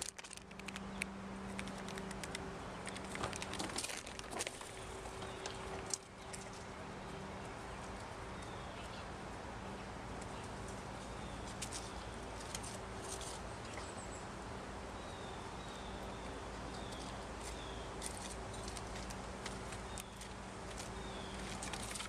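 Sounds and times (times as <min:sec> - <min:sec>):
sharp ticks: 0:00.0 - 0:03.8
faint steady hum: 0:00.0 - 0:22.0.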